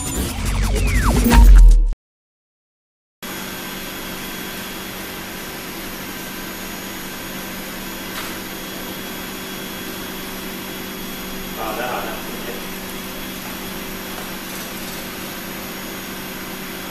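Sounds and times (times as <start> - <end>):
exhaust blower rushing air: 8.4 - 16.9.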